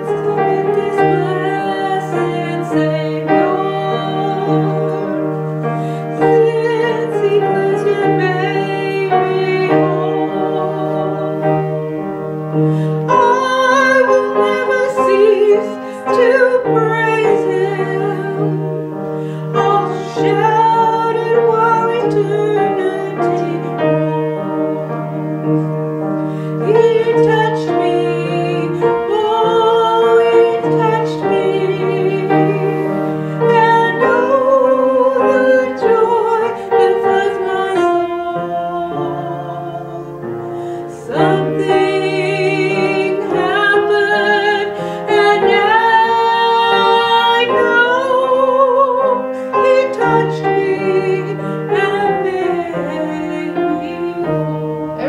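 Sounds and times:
person singing with vibrato: 0.0 - 55.0.

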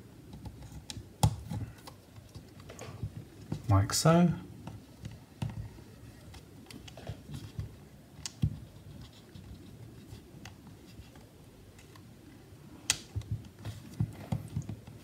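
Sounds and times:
light clicks and taps: 4.6 - 12.1.

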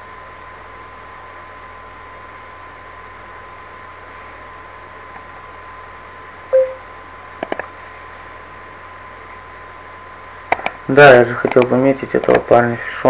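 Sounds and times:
faint high tone: 6.6 - 6.8
short alert tone: 6.6 - 6.8.

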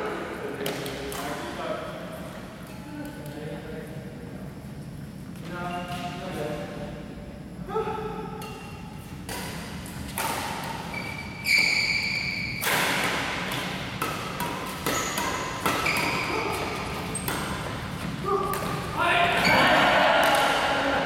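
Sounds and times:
rackets hitting shuttlecock: 8.4 - 19.5, 20.2 - 20.7
sneakers squeaking on wooden floor: 10.9 - 12.6, 14.9 - 18.4.

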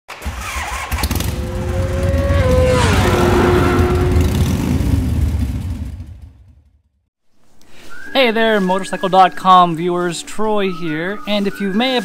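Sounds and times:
droning tone sliding down: 1.2 - 5.5
deep engine-like rumble: 1.2 - 6.4.

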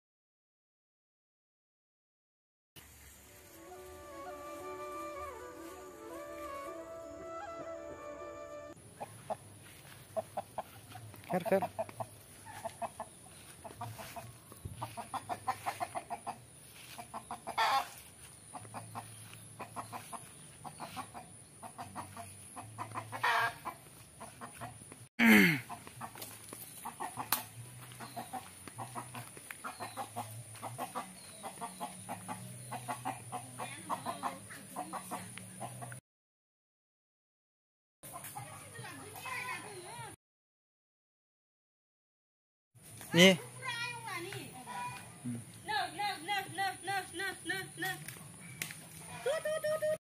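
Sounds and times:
chicken clucking: 8.9 - 24.9, 25.7 - 36.0.

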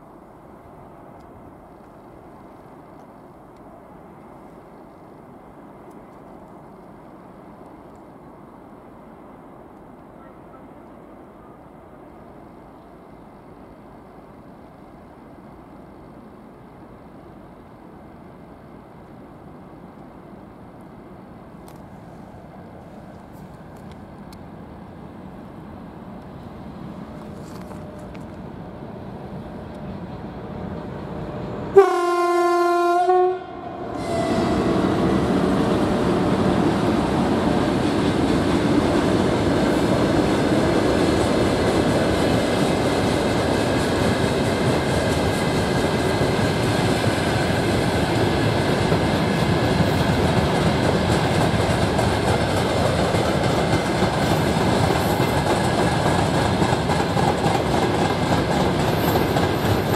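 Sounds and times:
train wheels on rails: 0.0 - 32.4, 33.0 - 59.9
locomotive horn blast: 31.7 - 35.4.

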